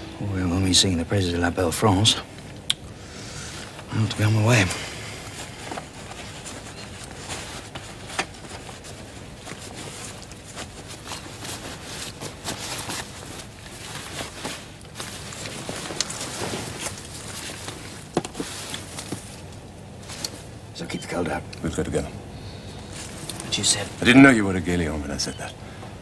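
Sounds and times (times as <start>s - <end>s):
rustling and shuffling: 0.0s - 26.0s.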